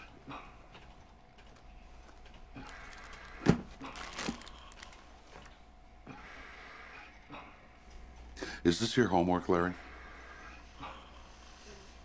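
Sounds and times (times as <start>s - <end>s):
plastic bag rustling: 2.0s - 5.5s.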